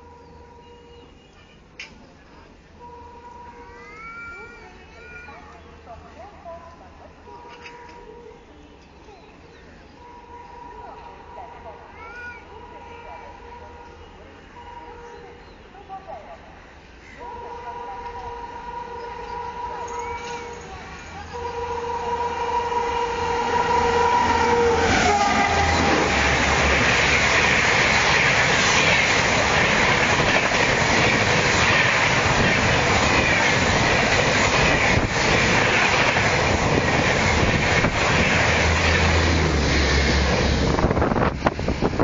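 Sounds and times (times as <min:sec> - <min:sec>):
two-tone train horn: 0:00.0 - 0:01.7, 0:02.8 - 0:03.7, 0:07.2 - 0:08.8, 0:10.0 - 0:11.8, 0:12.5 - 0:15.4, 0:17.2 - 0:27.5
train wheels rushing on rails: 0:16.8 - 0:42.0.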